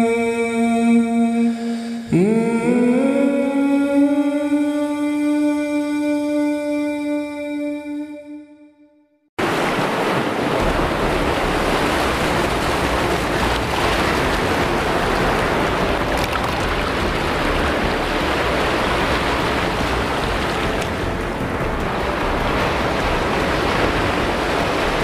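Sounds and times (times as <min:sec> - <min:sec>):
waterfall rushing over rocks: 0:09.4 - 0:25.0.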